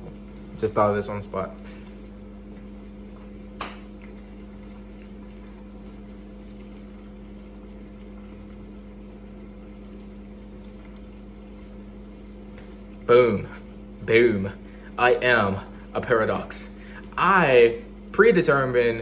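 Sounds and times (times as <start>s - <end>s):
appliance electrical hum: 0.0s - 19.0s.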